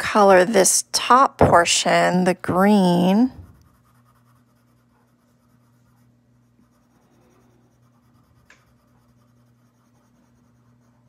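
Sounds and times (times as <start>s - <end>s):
pencil scratching on paper: 2.6s - 11.0s.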